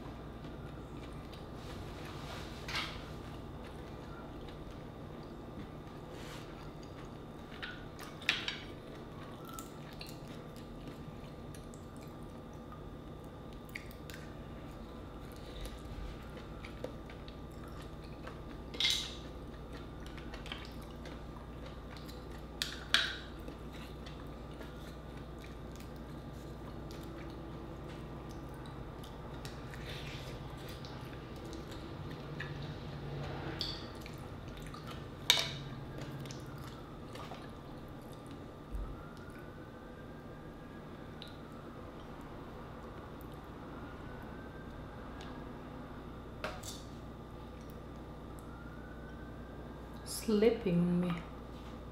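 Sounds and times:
wet eating and chewing: 0.3 - 39.9.

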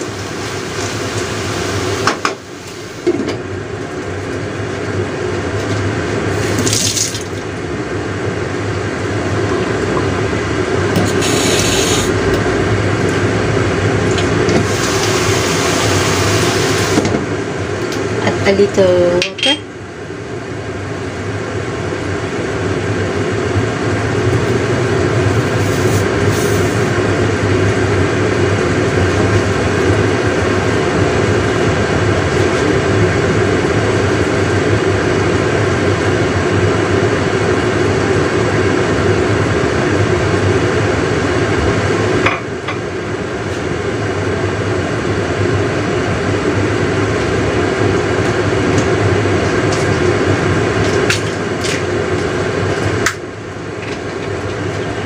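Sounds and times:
water boiling and sizzling in a wok: 0.0 - 7.8, 9.7 - 17.1, 24.4 - 34.9, 46.7 - 55.0.

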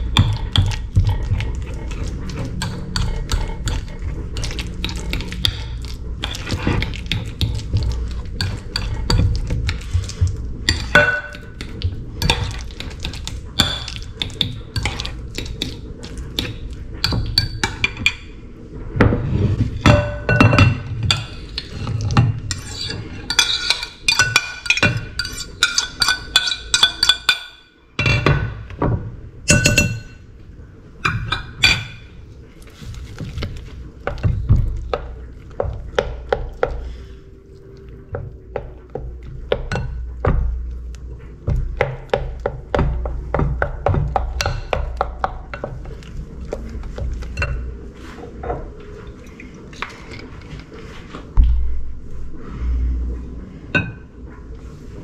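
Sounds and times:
wooden spoon stirring wet mixture: 0.0 - 55.0
fork scraping a plate: 21.1 - 27.3.

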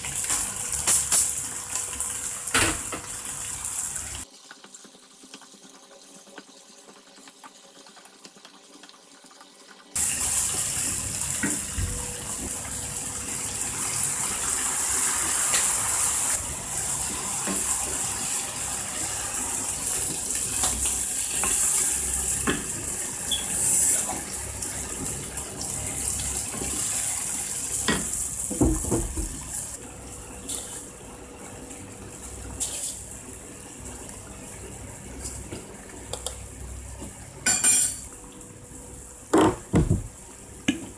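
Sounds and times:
water hissing in hot pan: 0.0 - 4.4, 9.9 - 29.8
pan simmering: 0.0 - 40.9.

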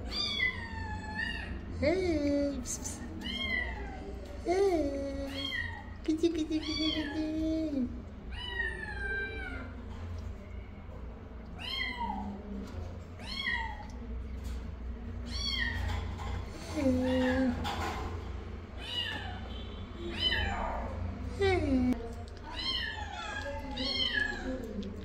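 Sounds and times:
kittens mewing: 2.7 - 9.8, 18.8 - 25.0.

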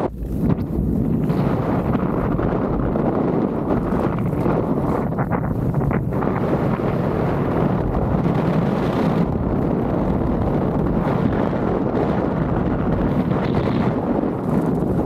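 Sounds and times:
skis scraping on snow: 0.0 - 11.1
wind rushing over microphone: 0.0 - 15.0.

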